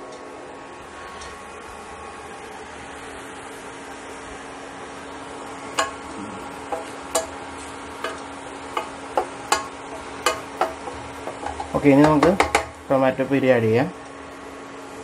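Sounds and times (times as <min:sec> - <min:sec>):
steady low hum: 0:00.0 - 0:15.0
garlic sizzling in oil: 0:00.9 - 0:15.0
oil popping and crackling: 0:05.4 - 0:12.9.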